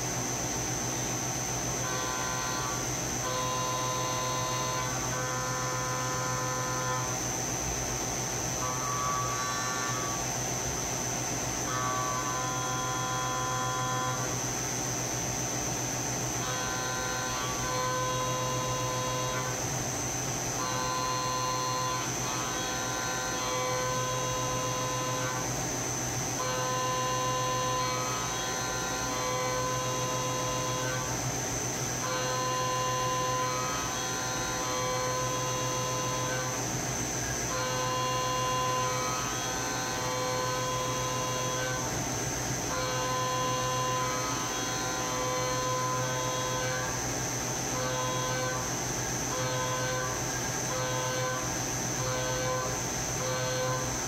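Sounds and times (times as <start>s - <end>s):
low electrical hum: 0.0s - 54.0s
mill spindle whine: 0.0s - 54.0s.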